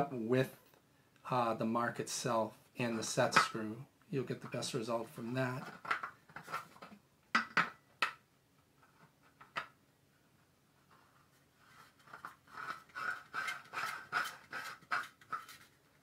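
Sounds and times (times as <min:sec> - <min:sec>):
threads clicking and scraping: 0:10.9 - 0:16.0.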